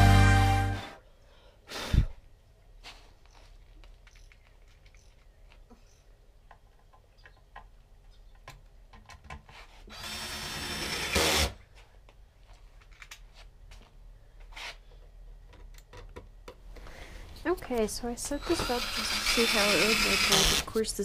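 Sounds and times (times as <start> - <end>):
cordless drill driving a screw: 9.9 - 11.6, 18.2 - 20.8.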